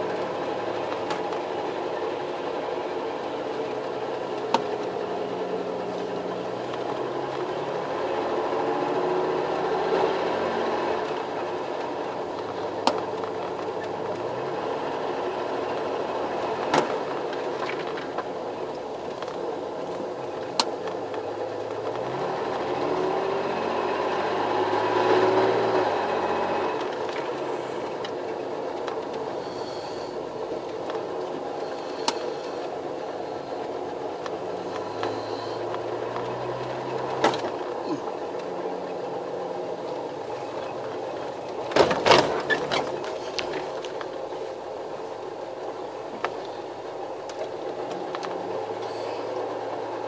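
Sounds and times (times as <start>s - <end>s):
car engine running at low speed: 0.0s - 50.0s.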